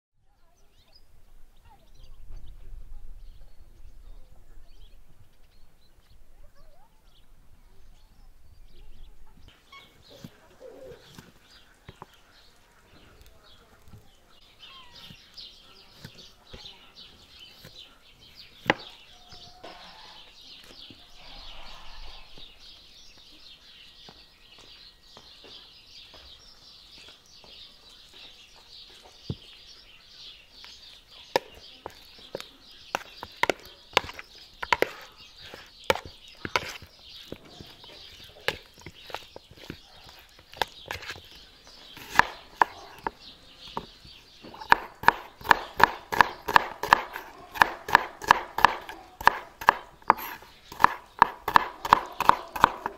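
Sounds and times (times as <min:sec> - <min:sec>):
knife striking cutting board: 0:44.6 - 0:52.9.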